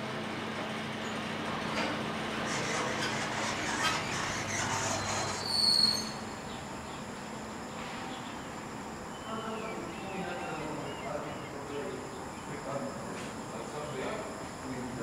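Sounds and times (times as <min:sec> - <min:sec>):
train rumble: 0:00.0 - 0:09.1
metro train squealing: 0:02.3 - 0:12.6.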